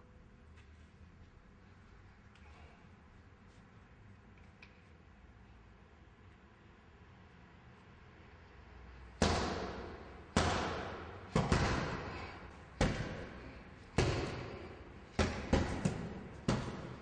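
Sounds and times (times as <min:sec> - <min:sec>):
punches thudding on heavy bag: 0:09.2 - 0:17.0.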